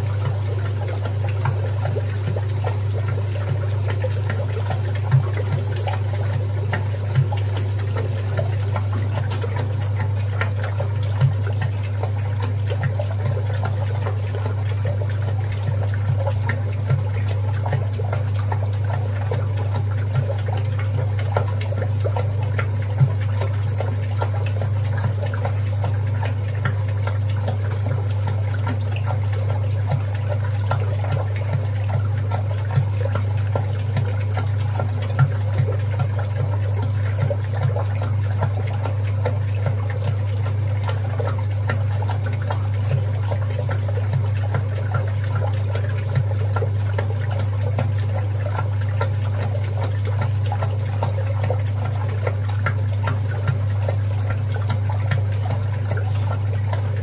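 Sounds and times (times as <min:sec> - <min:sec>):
washing machine low hum: 0:00.0 - 0:57.0
water and suds sloshing: 0:00.0 - 0:57.0.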